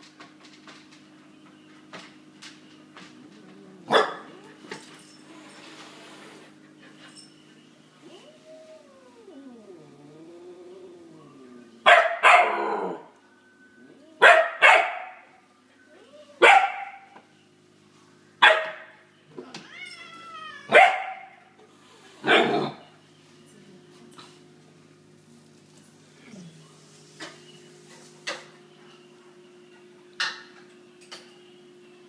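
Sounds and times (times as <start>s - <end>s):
puppy barking: 3.9s - 4.4s, 11.9s - 12.7s, 14.2s - 15.4s, 16.4s - 17.2s, 18.4s - 19.0s, 20.7s - 21.5s, 22.2s - 22.8s
cat growling: 8.2s - 11.7s.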